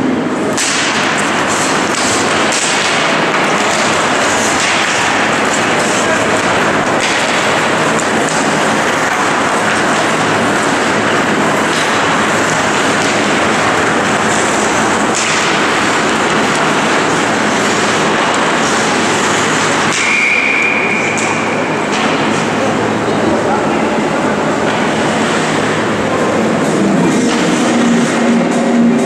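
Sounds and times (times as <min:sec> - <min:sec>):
arena background noise: 0:00.0 - 0:29.0
skates and sticks on ice: 0:00.5 - 0:22.6
referee's whistle: 0:20.0 - 0:21.3.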